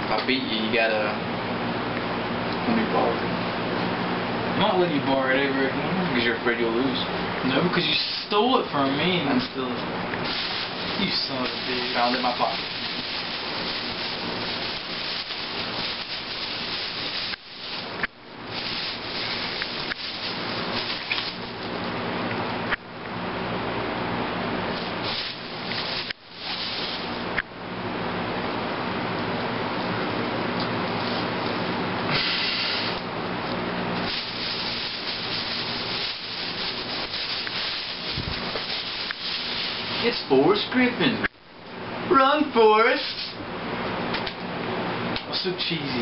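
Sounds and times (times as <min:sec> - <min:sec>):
plastic bag crinkling on microphone: 0:10.2 - 0:21.7, 0:24.7 - 0:27.3, 0:34.0 - 0:40.1.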